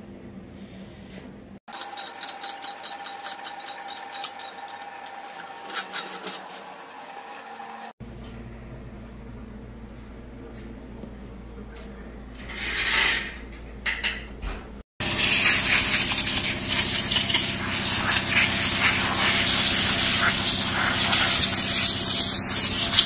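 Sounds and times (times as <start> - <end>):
air blow gun hissing: 15.0 - 23.0.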